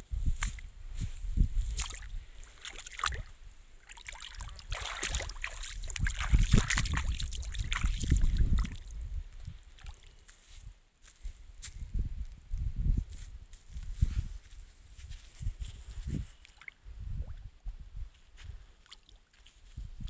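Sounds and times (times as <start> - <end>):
wind buffeting microphone: 0.0 - 2.4, 4.4 - 9.6, 11.6 - 18.7, 19.7 - 20.0.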